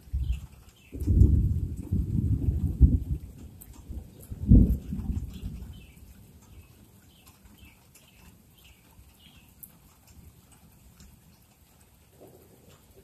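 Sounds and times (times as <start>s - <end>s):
thunder rumbling: 0.0s - 6.2s.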